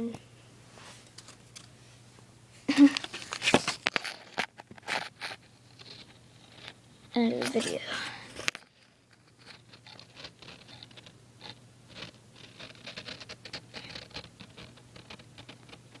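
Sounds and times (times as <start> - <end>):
faint steady hum: 0.0 - 16.0
camera handling scratches: 3.0 - 6.8, 9.2 - 15.8.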